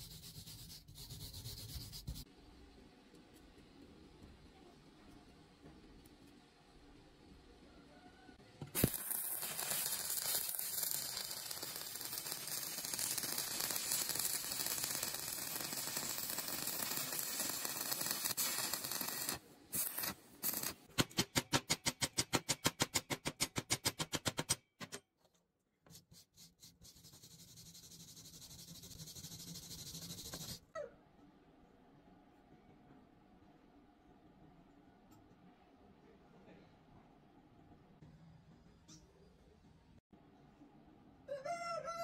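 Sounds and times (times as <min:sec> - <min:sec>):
welding arc crackling hiss: 0:08.7 - 0:20.9
welding arc striking crack: 0:08.7 - 0:24.4.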